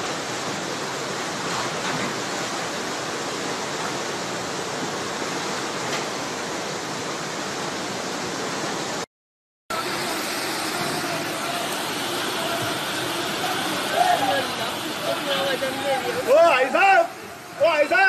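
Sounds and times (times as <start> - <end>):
floodwater rushing: 0.0 - 9.1, 9.7 - 18.0.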